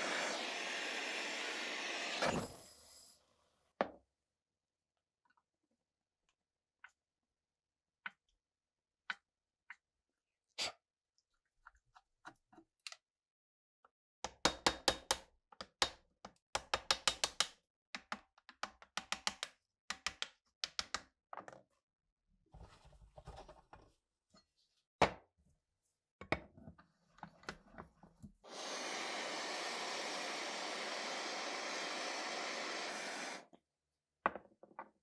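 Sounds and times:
clicks and taps: 14.2 - 21.6.

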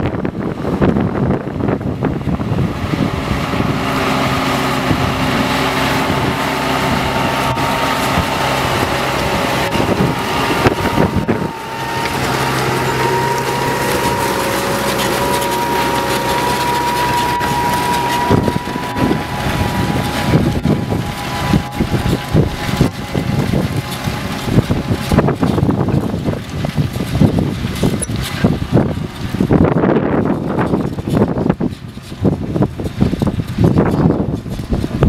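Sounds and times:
tractor diesel engine under load: 0.0 - 35.0
thin high whine: 4.8 - 26.8.

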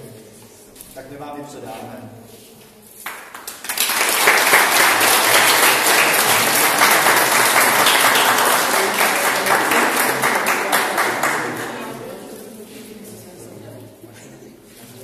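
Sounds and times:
people applauding: 3.0 - 12.2.

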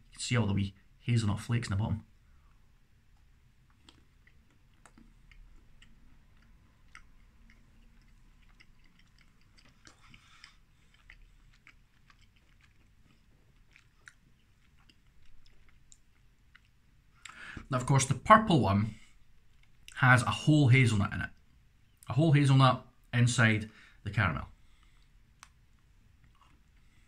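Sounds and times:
faint chewing: 2.1 - 17.7, 19.0 - 20.4, 24.5 - 27.0.

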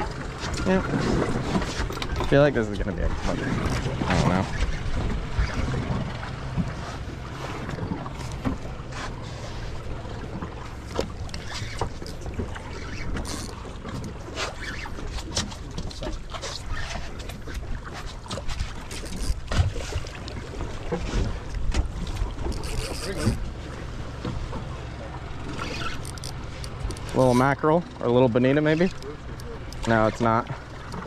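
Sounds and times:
boat engine rumble: 0.0 - 31.0
water slapping against hull: 0.0 - 31.0.

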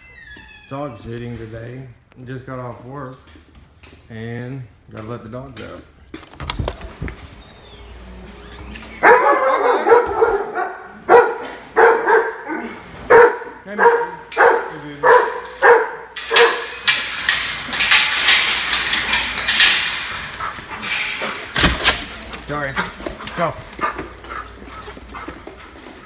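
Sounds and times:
dogs barking: 9.0 - 17.0.

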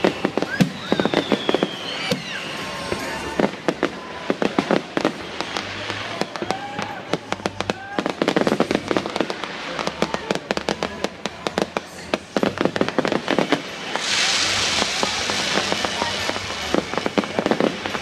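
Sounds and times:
fireworks whistles sliding in pitch: 0.0 - 4.4
fireworks bangs and crackles: 0.0 - 18.0.

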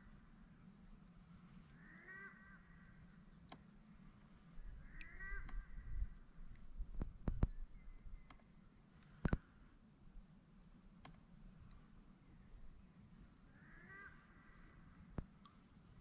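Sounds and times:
crow calling: 1.8 - 3.0, 4.8 - 5.9, 13.5 - 14.7.

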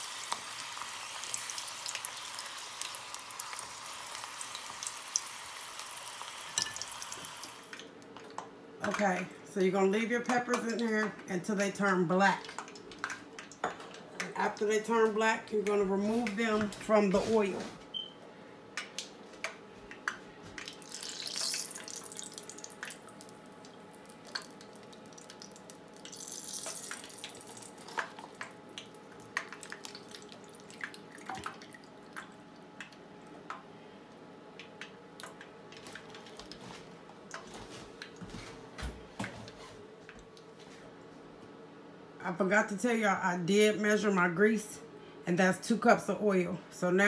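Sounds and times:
chili peppers frying in oil: 0.0 - 7.8, 20.6 - 31.9.

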